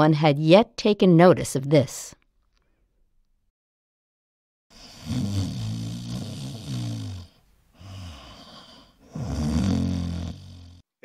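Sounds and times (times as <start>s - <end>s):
cartoon snoring: 4.7s - 10.9s.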